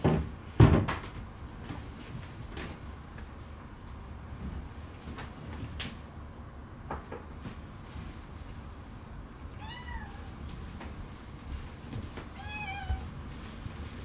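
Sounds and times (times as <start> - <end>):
low room rumble: 0.0 - 14.0
cat meowing: 9.5 - 10.4, 12.3 - 13.1.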